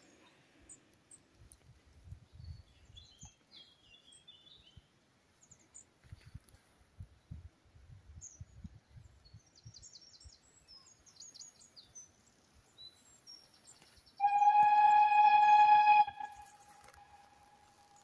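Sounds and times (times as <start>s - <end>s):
small birds chirping: 0.0s - 7.4s, 8.2s - 15.0s
steam locomotive whistle: 14.2s - 17.8s.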